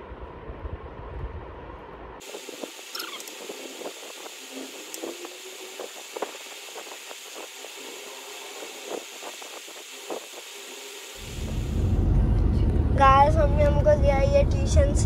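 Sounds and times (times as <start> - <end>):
steady background hiss: 2.2 - 12.1.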